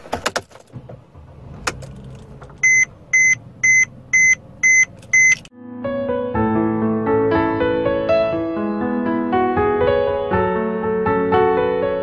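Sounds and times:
car key rattling in ignition: 0.0 - 1.0
dashboard warning beeps: 2.6 - 5.5.

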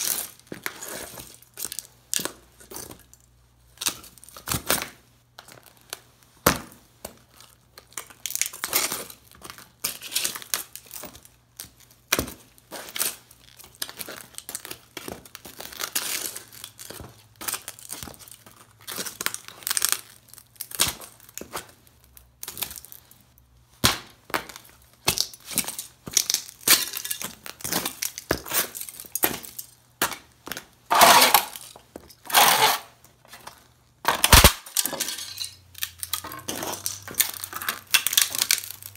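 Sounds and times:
boots crushing radio pieces: 34.0 - 34.9.

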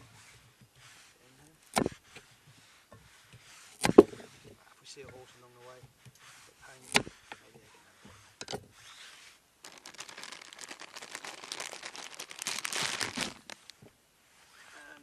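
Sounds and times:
crinkling rustle: 8.7 - 15.0.

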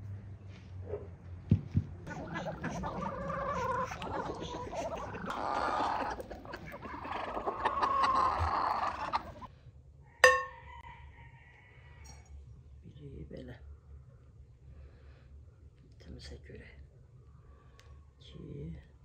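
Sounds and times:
chickens clucking: 2.0 - 9.5.

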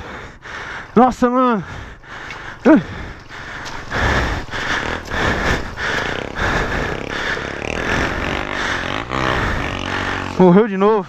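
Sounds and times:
motorcycle engine running roughly: 4.0 - 10.6.

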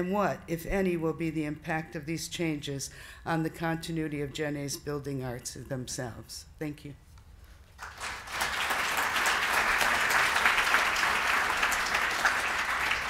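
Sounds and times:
audience applauding: 7.8 - 13.0.

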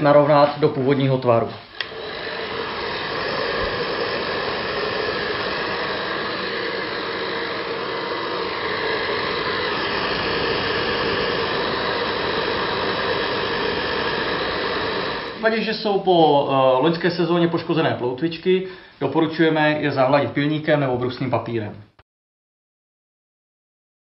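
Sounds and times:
heat gun fan blowing: 0.0 - 16.5.

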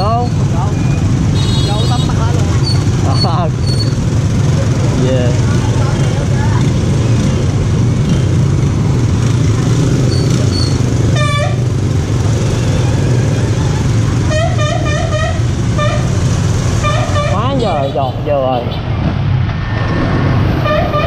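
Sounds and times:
motorcycles rumbling: 0.0 - 21.0
horn toots: 11.2 - 11.6, 16.8 - 17.9, 20.6 - 21.0.

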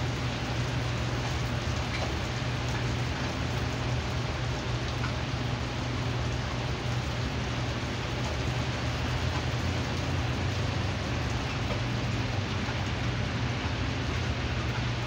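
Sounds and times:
heavy rain on pavement and cars: 0.0 - 15.0.

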